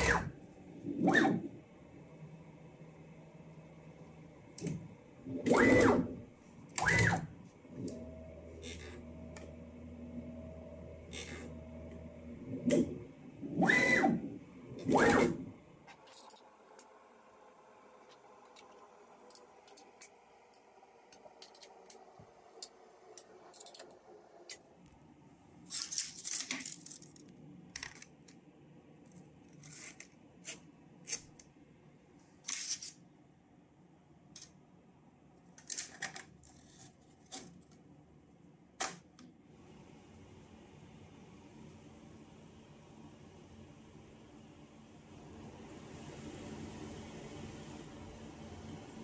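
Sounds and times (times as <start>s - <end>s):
metal clamps clicking and clinking: 16.0s - 16.5s, 23.2s - 24.0s.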